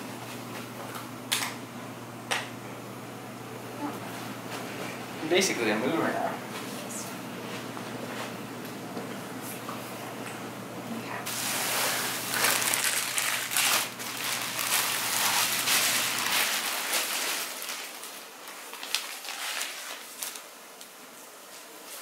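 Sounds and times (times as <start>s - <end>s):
plastic bag crinkling: 11.3s - 21.0s.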